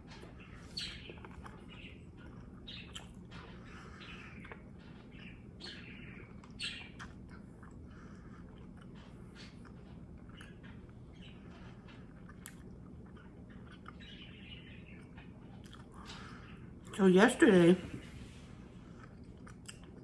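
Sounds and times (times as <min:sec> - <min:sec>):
wet mouth chewing clicks: 0:02.2 - 0:03.2, 0:19.0 - 0:20.0.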